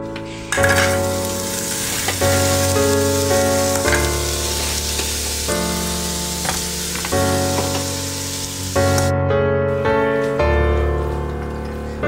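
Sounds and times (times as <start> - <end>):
food sizzling in a pan: 0.3 - 9.1.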